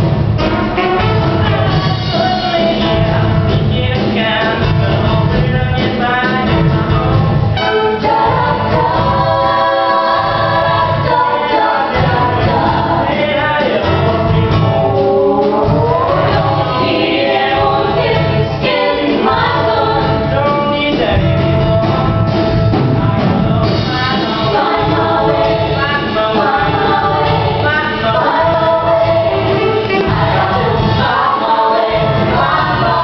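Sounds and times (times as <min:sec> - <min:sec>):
instrumental accompaniment: 0:00.0 - 0:33.0
choir singing: 0:07.6 - 0:20.7, 0:23.2 - 0:33.0.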